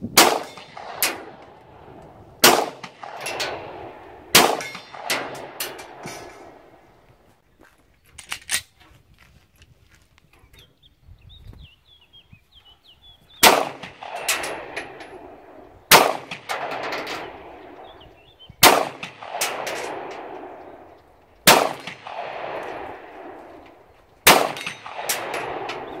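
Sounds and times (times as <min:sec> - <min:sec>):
pistol shots with echo: 0:00.1 - 0:07.0, 0:13.4 - 0:26.0.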